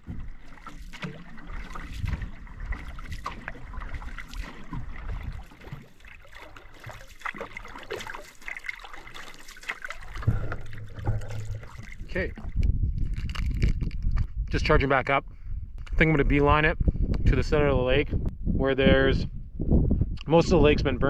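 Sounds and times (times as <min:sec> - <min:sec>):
canoe paddle strokes in water: 0:00.0 - 0:12.6
water splashing against hull: 0:00.0 - 0:14.1.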